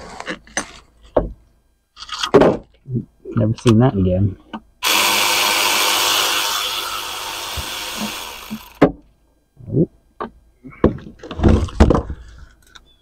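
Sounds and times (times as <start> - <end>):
power ratchet whirring: 4.8 - 8.8.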